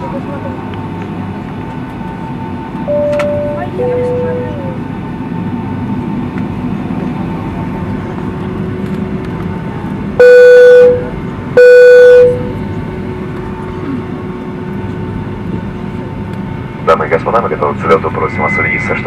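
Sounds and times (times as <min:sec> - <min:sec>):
airliner cabin engine noise: 0:00.0 - 0:19.0
electronic tones: 0:10.2 - 0:12.5.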